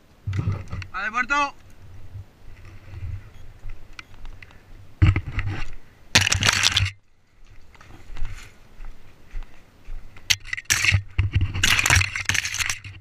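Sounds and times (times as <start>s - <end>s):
footsteps crunching on stony ground: 1.8s - 13.0s
footsteps scuffing: 7.4s - 11.2s.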